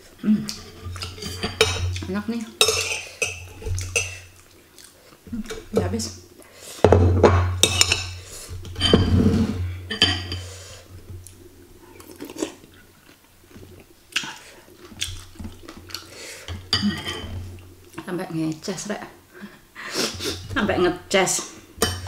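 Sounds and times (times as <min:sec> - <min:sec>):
cutlery clinking against glass bowl: 0:00.7 - 0:02.0, 0:02.6 - 0:04.2, 0:07.4 - 0:08.2
chewing: 0:03.4 - 0:05.7, 0:11.2 - 0:18.0.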